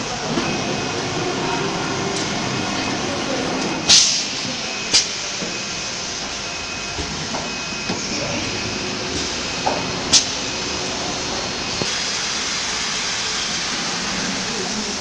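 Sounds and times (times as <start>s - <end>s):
machinery noise: 0.0s - 15.0s.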